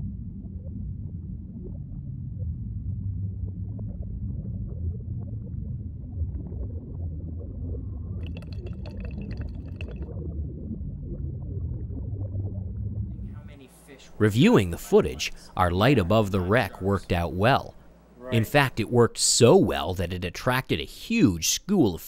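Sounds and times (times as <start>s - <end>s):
underwater water gurgle and bubbles: 0.0s - 13.2s.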